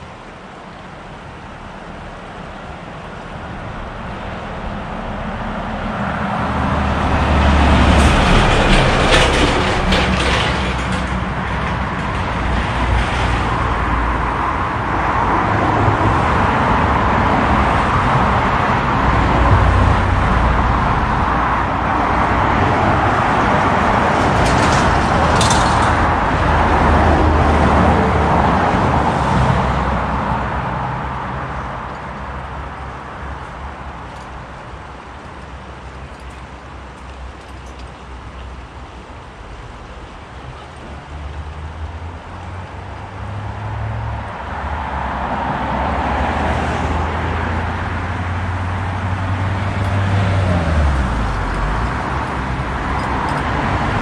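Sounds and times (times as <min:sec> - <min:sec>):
road traffic passing: 0:00.0 - 0:54.0
short clatters: 0:07.8 - 0:13.4, 0:24.2 - 0:26.2.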